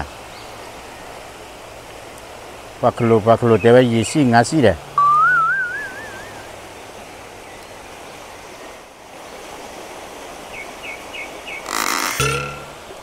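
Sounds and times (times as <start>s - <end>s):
wavering whistle: 5.0s - 6.5s
water rushing over stream riffle: 8.4s - 13.0s.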